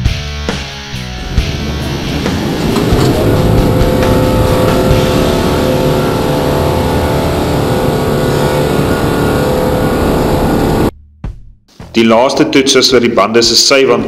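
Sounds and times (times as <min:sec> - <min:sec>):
pickup engine pulling under load: 0:01.1 - 0:10.9.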